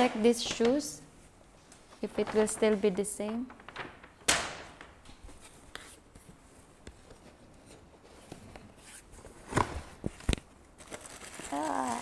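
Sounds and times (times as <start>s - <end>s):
paper bag rustling: 2.0s - 5.7s, 9.5s - 12.0s.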